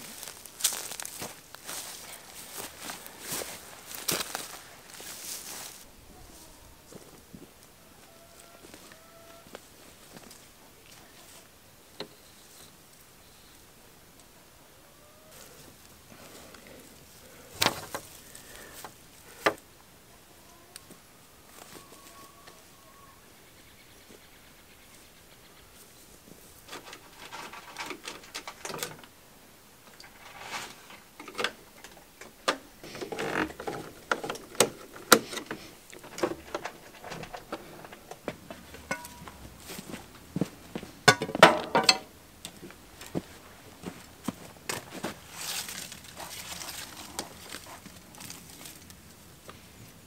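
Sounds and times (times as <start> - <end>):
clicks and knocks of tools: 41.1 - 42.7.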